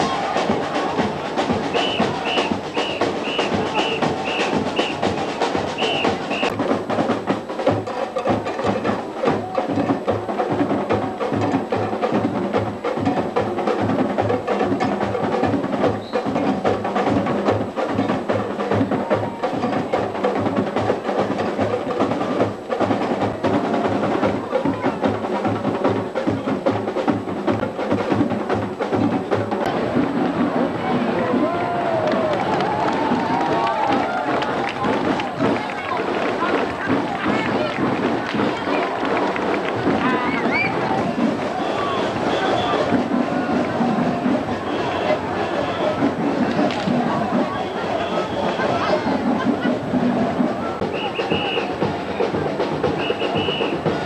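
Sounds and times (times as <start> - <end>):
sharp clicking percussion strikes: 0.0 - 30.6, 32.0 - 54.0
low drumbeat: 0.0 - 54.0.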